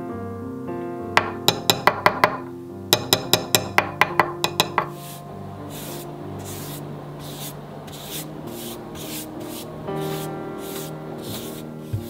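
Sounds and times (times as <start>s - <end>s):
soft background music: 0.0s - 12.0s
cloth pad swishing on wood: 4.8s - 12.0s.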